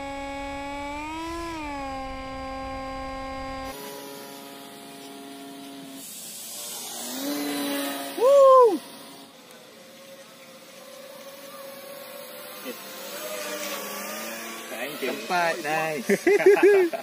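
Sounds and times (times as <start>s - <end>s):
model glider motor whining: 0.0s - 17.0s.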